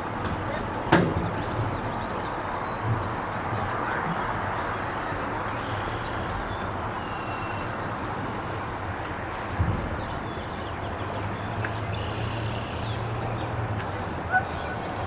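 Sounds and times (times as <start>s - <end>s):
small birds chirping: 0.0s - 8.6s, 9.2s - 15.0s.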